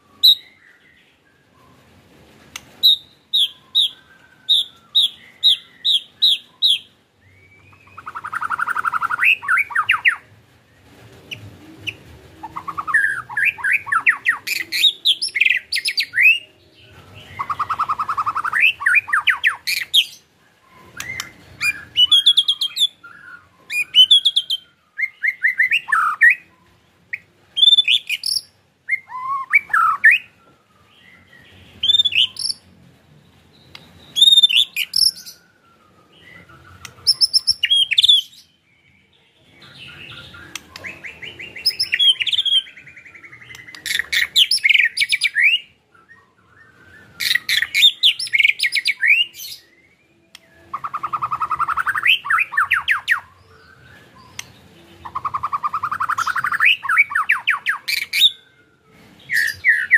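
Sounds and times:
bird whistled notes: 33.7 - 38.4, 39.9 - 59.9.

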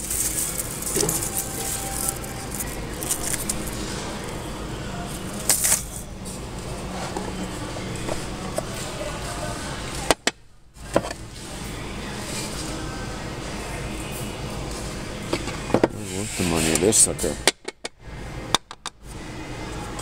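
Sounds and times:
merchandise rustling and knocking: 0.0 - 4.4, 5.1 - 11.4
shop background noise: 0.0 - 20.0.

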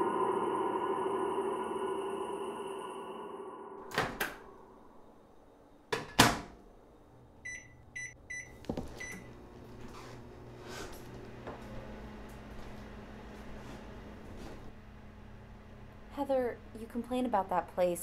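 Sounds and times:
microwave humming: 5.8 - 17.1
keypad beeps: 7.5 - 9.3.

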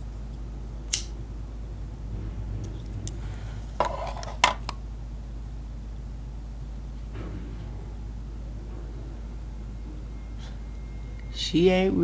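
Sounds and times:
lighter clicking: 0.9 - 1.1.

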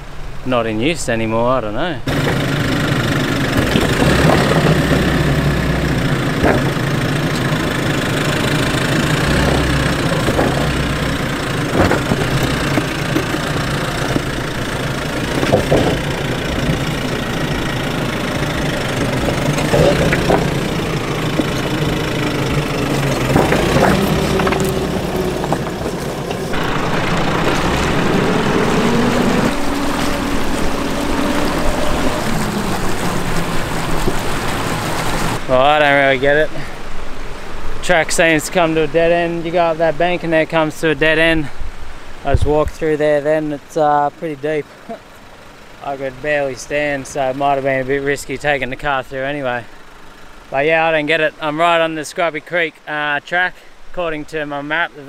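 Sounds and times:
engine running at low revs: 2.1 - 36.0
water splashing around wheels: 2.1 - 52.8
tyres knocking on stone: 3.5 - 29.0.

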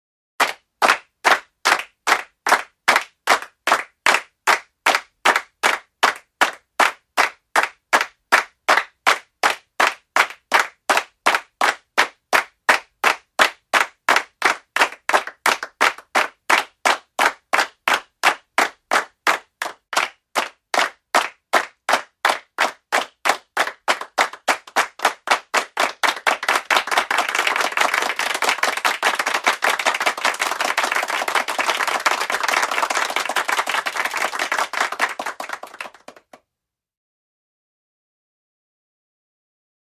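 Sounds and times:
hand claps in steady rhythm: 0.4 - 36.4.

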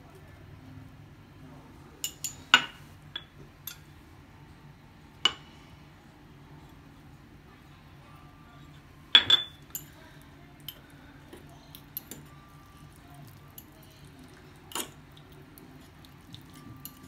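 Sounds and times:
fork clinking on ceramic ramekin: 16.3 - 17.0.

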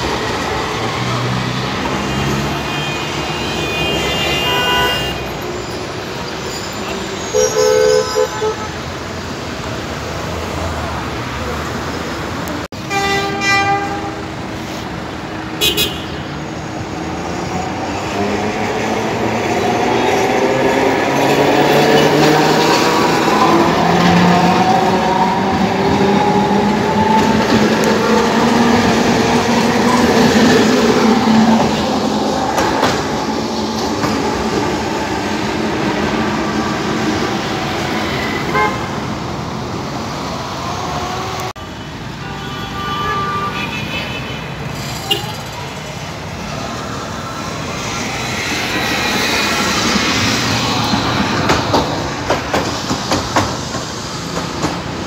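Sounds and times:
tram wheels rumbling on rails: 0.0 - 4.0, 16.4 - 41.5, 44.4 - 55.0
tram horn toots: 1.8 - 5.6, 6.8 - 9.0, 12.8 - 14.5, 38.0 - 39.1, 40.7 - 45.5.

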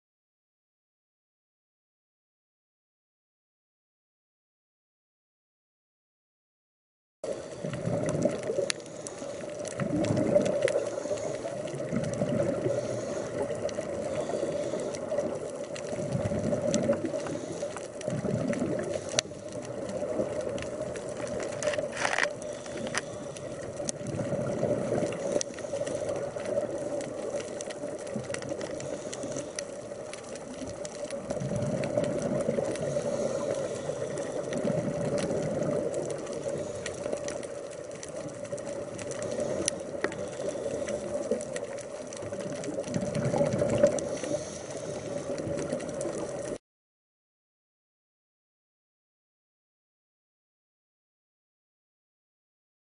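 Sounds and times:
regulator bubbles gurgling: 7.3 - 46.6.

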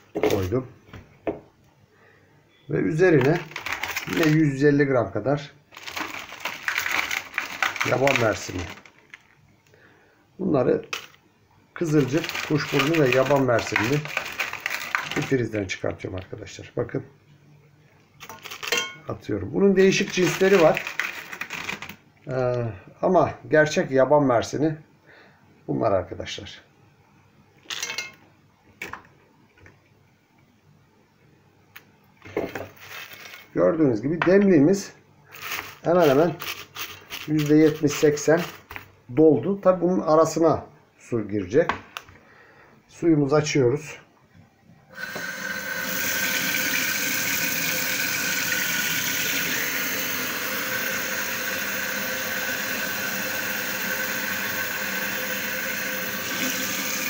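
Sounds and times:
berries rattling into metal teapot: 3.0 - 4.6, 5.8 - 9.3, 11.8 - 15.6, 18.2 - 19.0, 19.9 - 22.0, 35.4 - 38.9
tap water running into teapot: 45.0 - 57.0.

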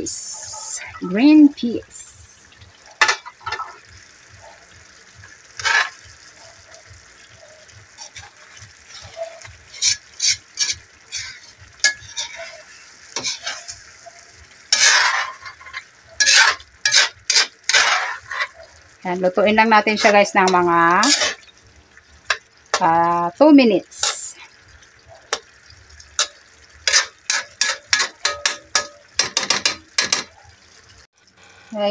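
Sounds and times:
stew sizzling: 0.0 - 31.9
metal ladle scraping wok: 5.6 - 6.1, 8.0 - 13.8, 14.7 - 18.7, 19.6 - 21.5, 26.2 - 30.2.

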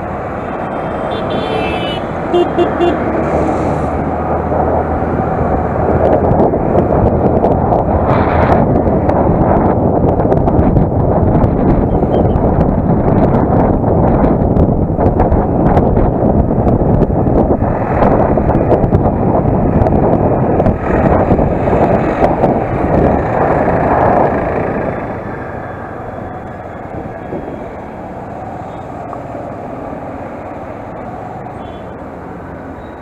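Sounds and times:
wind buffeting microphone: 3.0 - 33.0.

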